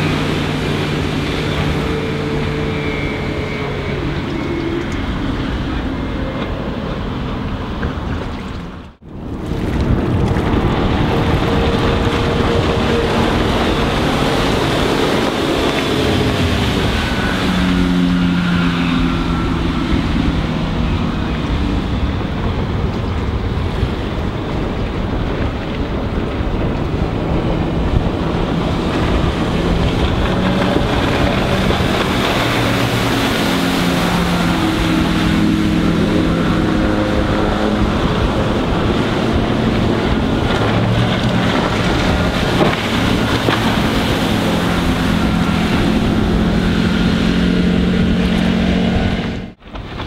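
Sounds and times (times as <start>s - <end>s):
boat engine running at speed: 0.0s - 50.0s
wind noise on microphone: 0.0s - 50.0s.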